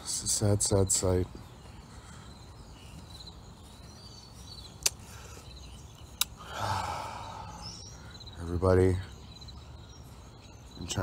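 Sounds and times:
crickets chirping: 0.0s - 11.0s
sharp clicks: 4.8s - 5.0s.

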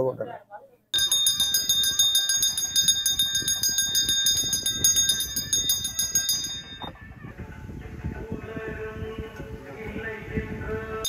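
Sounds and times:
small hand bell ringing rapidly: 1.0s - 6.9s.

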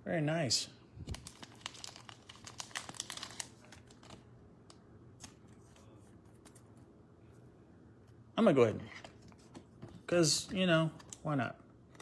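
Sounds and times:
plastic card sleeve crinkling: 1.0s - 6.7s.

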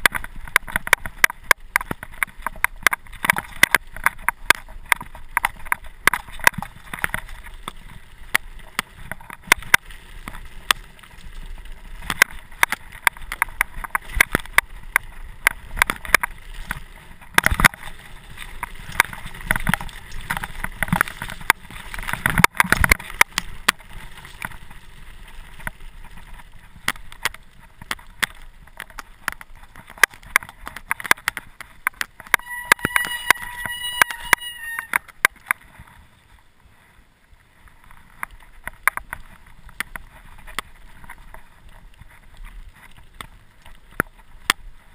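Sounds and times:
bicycle rattling over gravel: 0.0s - 44.9s
brief high squeal: 32.4s - 35.0s.

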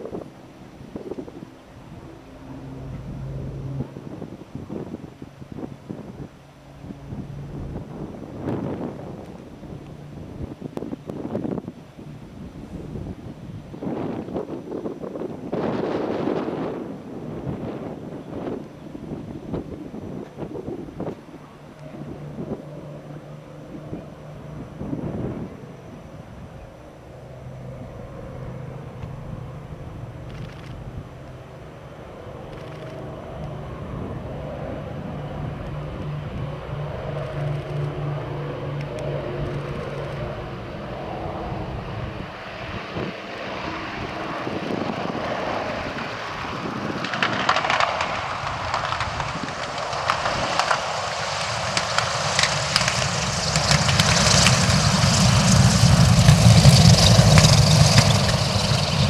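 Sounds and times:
aircraft engines droning: 0.0s - 59.0s.

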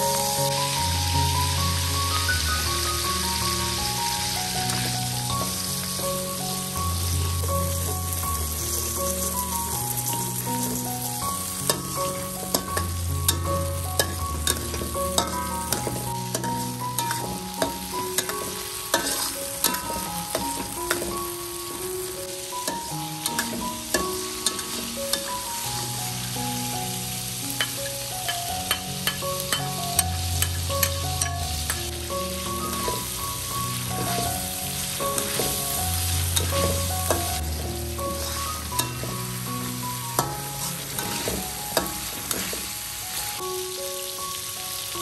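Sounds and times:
frying in hot oil: 0.0s - 45.0s
soft background music: 0.0s - 45.0s
metal spoon scraping wok: 18.2s - 20.0s, 40.2s - 42.6s.

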